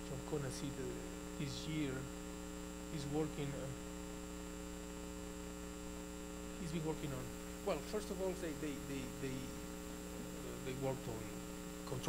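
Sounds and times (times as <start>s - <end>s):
man speaking: 0.0s - 2.1s, 2.9s - 3.8s, 6.6s - 9.6s, 10.2s - 12.0s
electrical mains hum: 0.0s - 12.0s.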